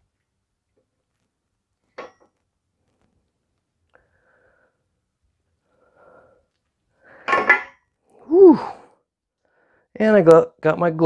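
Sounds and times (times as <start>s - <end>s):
faint breathing: 3.9s - 4.9s, 5.6s - 7.5s, 8.2s - 10.0s.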